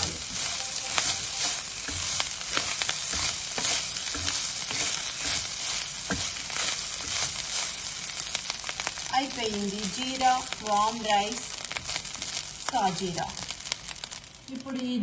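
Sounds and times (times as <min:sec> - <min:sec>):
frying hiss: 0:00.0 - 0:15.0
spatula scraping a pan: 0:00.4 - 0:09.1.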